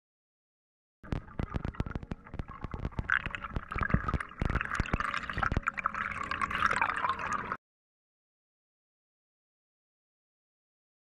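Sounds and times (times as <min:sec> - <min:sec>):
underwater clicks and crackles: 0:01.0 - 0:07.6.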